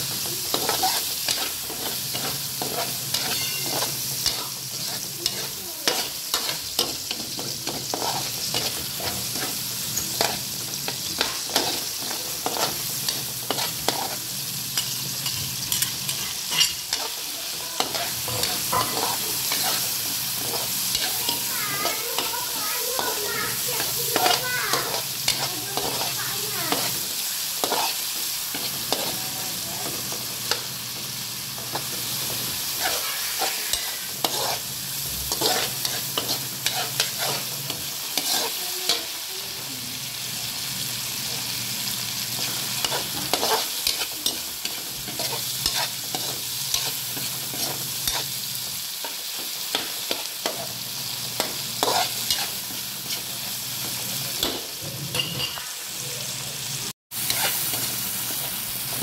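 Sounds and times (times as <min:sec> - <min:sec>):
vegetables sizzling in hot oil: 0:00.0 - 0:59.0
metal spatula scraping a wok: 0:00.5 - 0:10.4, 0:27.6 - 0:29.1, 0:32.7 - 0:37.6, 0:38.2 - 0:38.6, 0:42.4 - 0:48.3, 0:51.8 - 0:53.3, 0:57.2 - 0:58.4.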